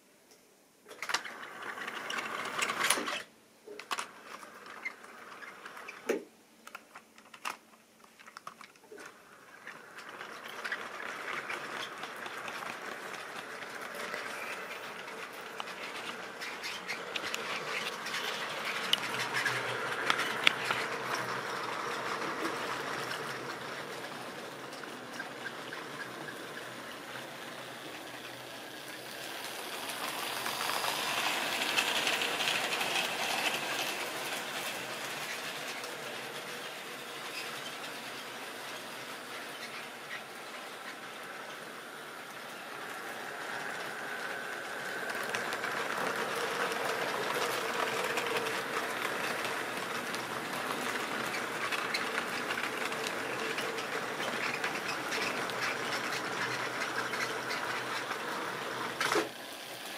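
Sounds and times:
model train wheels rattling: 0:00.9 - 0:59.9
sharp clicks of track: 0:08.2 - 0:27.3.

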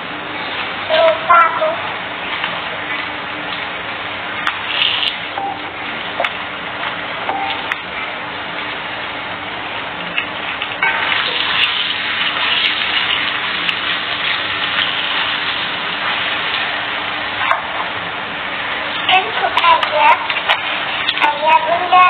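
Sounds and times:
tap water running: 0:10.1 - 0:18.0, 0:18.6 - 0:22.0.

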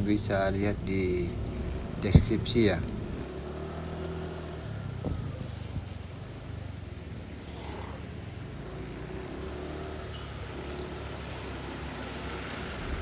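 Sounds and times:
traffic on wet road: 0:00.0 - 0:13.0
vehicle engine humming: 0:00.0 - 0:13.0.

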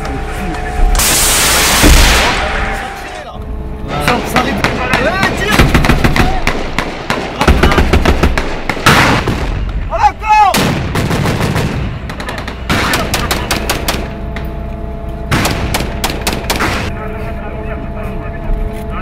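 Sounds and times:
loud blast: 0:00.8 - 0:03.0, 0:04.2 - 0:14.2
rifle and machine-gun shots: 0:04.6 - 0:09.7, 0:10.5 - 0:14.1, 0:15.3 - 0:16.9.

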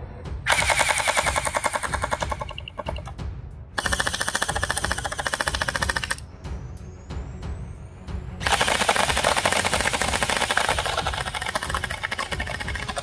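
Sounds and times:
gel blasters firing full-auto: 0:00.5 - 0:03.1, 0:03.8 - 0:06.2, 0:08.4 - 0:13.0.

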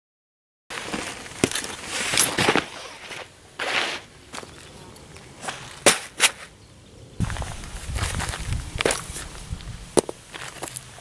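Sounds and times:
footsteps on gravel: 0:00.7 - 0:06.5, 0:07.2 - 0:11.0.

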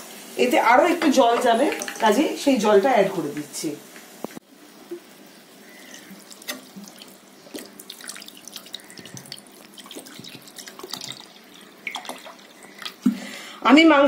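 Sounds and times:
water splashing in a pot: 0:01.0 - 0:02.7, 0:05.6 - 0:13.3
spatula stirring in a pot: 0:05.8 - 0:13.1.

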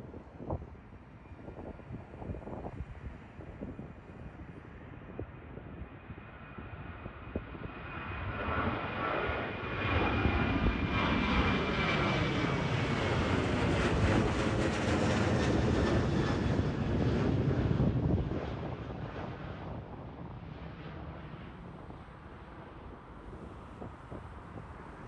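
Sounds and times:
jet airliner engine roar: 0:00.0 - 0:25.0.

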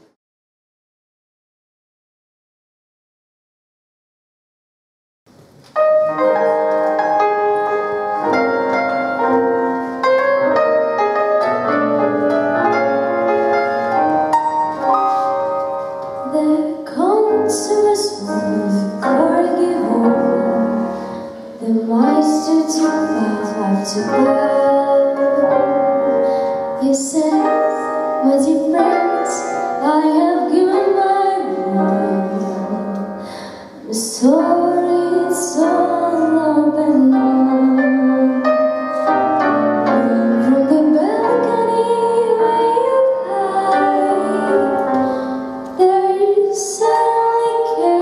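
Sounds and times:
orchestra of strings and piano: 0:05.4 - 0:48.0
woman singing: 0:16.2 - 0:21.0, 0:21.6 - 0:25.6, 0:26.8 - 0:33.1, 0:33.8 - 0:38.5, 0:39.9 - 0:45.0, 0:45.8 - 0:48.0.

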